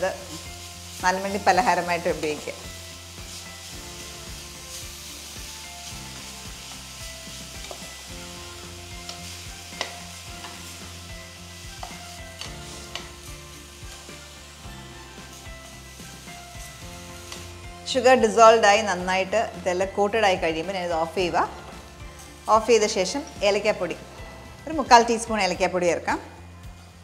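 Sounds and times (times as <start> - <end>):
food sizzling in a frying pan: 0.0 - 27.0
spatula tapping a pan: 7.6 - 7.9, 9.8 - 10.6, 11.7 - 13.2.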